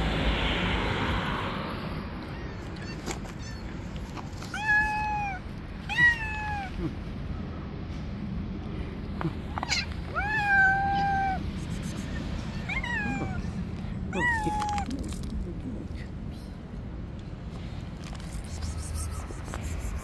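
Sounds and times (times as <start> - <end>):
cat meowing: 4.5 - 6.8, 9.5 - 11.5, 12.1 - 15.0.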